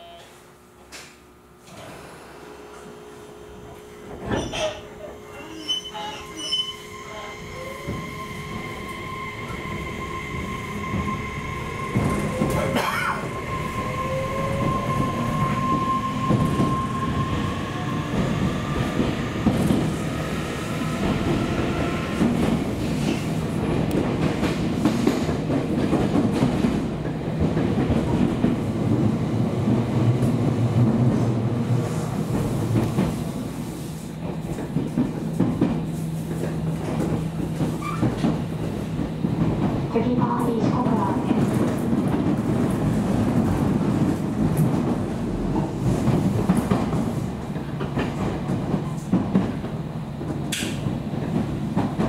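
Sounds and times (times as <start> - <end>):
electric train inverter whine: 0.0 - 24.8
wheels rumbling on rail: 2.7 - 52.0.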